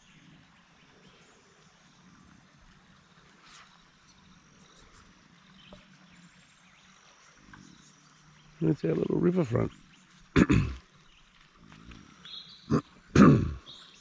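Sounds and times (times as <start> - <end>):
faint outdoor hiss: 0.0 - 14.0.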